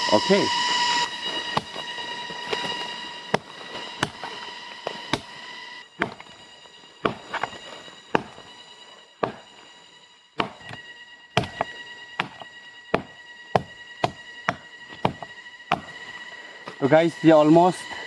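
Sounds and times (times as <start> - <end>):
axe chopping into dry wood: 1.5 - 1.9, 3.3 - 4.3, 4.9 - 5.4, 6.0 - 6.4, 7.0 - 8.5, 9.2 - 9.5, 10.4 - 10.8, 11.4 - 16.0.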